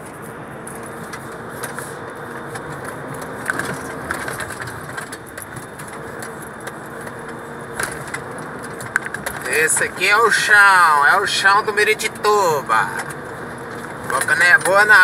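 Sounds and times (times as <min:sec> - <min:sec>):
road noise: 0:00.0 - 0:15.0
truck engine drone: 0:00.0 - 0:15.0
cab rattling and knocking: 0:01.1 - 0:10.2, 0:12.9 - 0:15.0.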